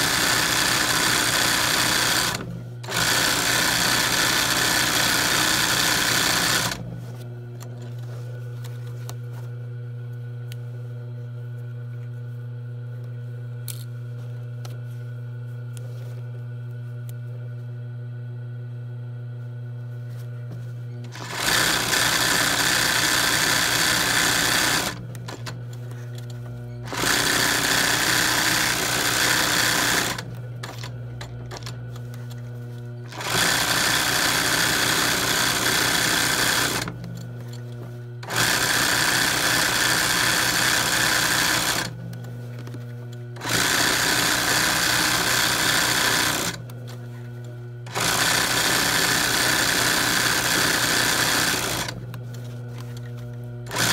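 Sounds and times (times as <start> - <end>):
sewing machine stitching: 0.0 - 6.8, 21.0 - 25.6, 26.8 - 31.8, 33.1 - 37.2, 38.2 - 42.0, 43.4 - 46.7, 47.9 - 52.0, 53.7 - 53.9.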